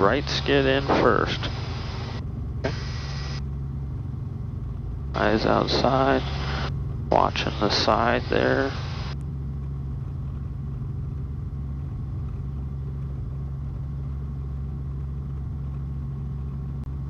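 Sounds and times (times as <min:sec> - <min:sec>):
helicopter engine and rotors: 0:00.0 - 0:17.0.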